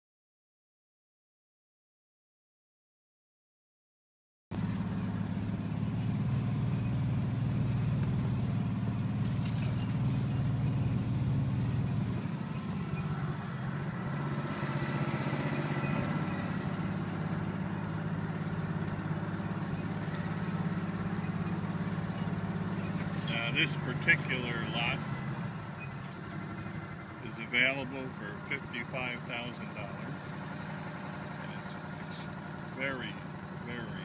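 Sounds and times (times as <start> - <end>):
vehicle engine droning: 4.5 - 34.0.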